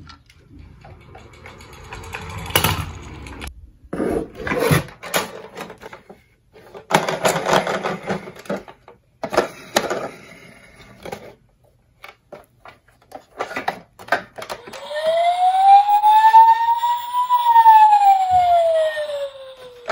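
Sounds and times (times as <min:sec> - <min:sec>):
toy car rolling down a board: 0:00.2 - 0:03.5
plastic toy clattering in a box: 0:04.8 - 0:10.2, 0:12.1 - 0:14.8.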